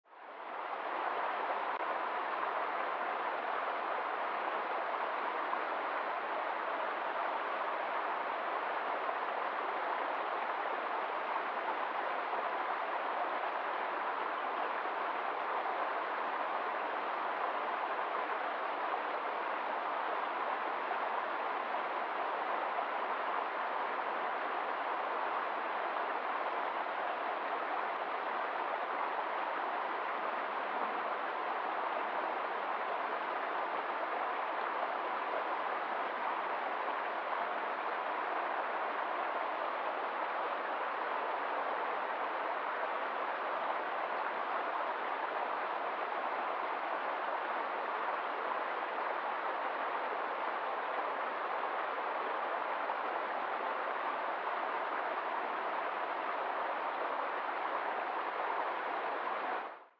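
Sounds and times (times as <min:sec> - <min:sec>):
stream running over stones: 0:00.6 - 0:59.6.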